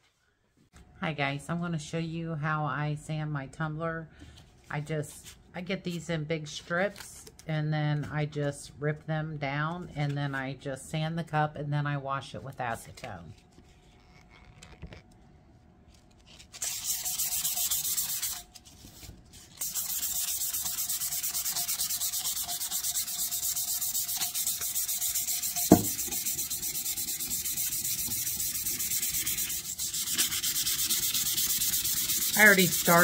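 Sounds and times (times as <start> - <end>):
sandpaper rubbing on steel: 16.6 - 18.4, 19.6 - 33.0.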